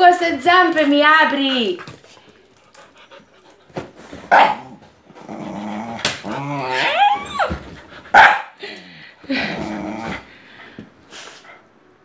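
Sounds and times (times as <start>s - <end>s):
dog barking: 4.3s - 4.7s, 8.1s - 8.6s
dog play-growling and whining: 4.6s - 8.1s, 9.3s - 10.4s.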